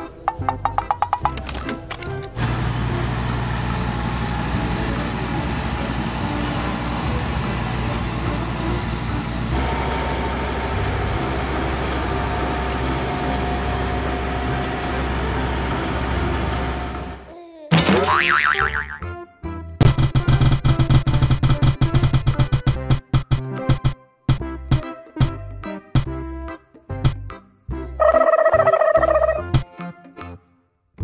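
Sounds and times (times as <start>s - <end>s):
road roller diesel engines running: 0.1s - 17.3s.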